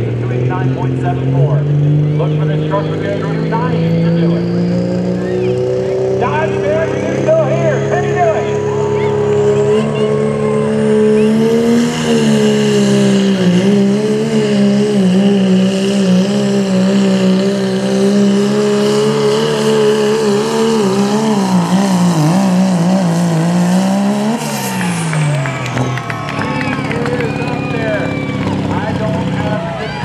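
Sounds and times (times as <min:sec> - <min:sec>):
diesel truck engine under full throttle: 0:00.0 - 0:30.0.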